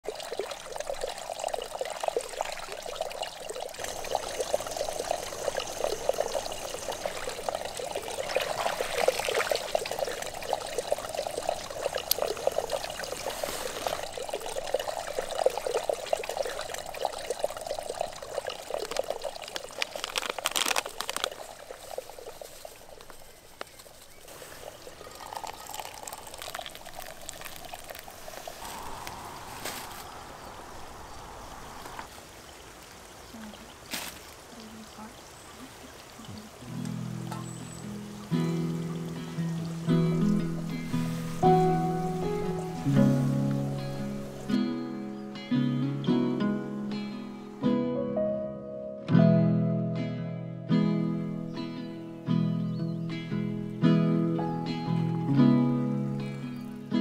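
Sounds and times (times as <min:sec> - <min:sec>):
hot water pouring into filter: 0:00.0 - 0:23.2, 0:24.3 - 0:30.0
water trickling and bubbling: 0:00.0 - 0:44.6.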